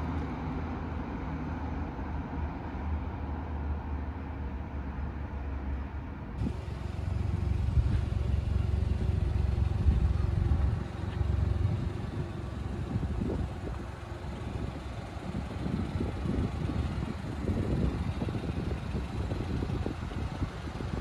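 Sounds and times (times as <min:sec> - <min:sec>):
car engine idling: 0:06.4 - 0:21.0.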